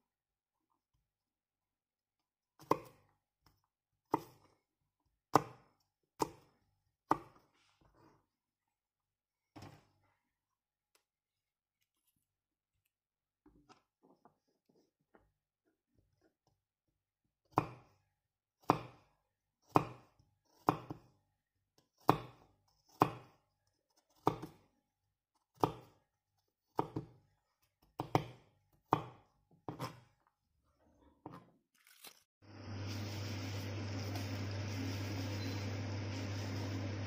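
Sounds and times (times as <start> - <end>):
knife chopping on wooden board: 2.6 - 3.0, 5.3 - 7.4, 17.5 - 17.9, 18.6 - 19.0, 19.7 - 21.1, 22.0 - 23.4, 24.2 - 24.6, 25.6 - 26.0, 26.7 - 27.2, 27.9 - 30.1
steady hum with hiss: 32.5 - 37.0.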